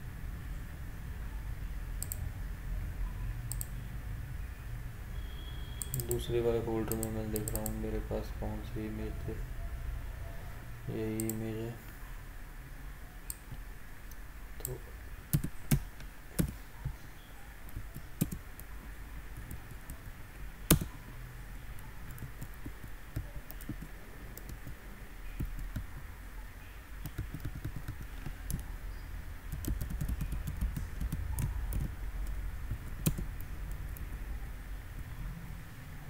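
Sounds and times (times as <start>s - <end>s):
low steady hum: 0.0s - 36.0s
keyboard typing: 3.5s - 3.8s, 5.8s - 7.9s, 14.6s - 17.0s, 17.6s - 26.1s, 27.0s - 28.8s, 29.4s - 34.3s
mouse clicks: 3.5s - 3.8s, 5.8s - 6.2s.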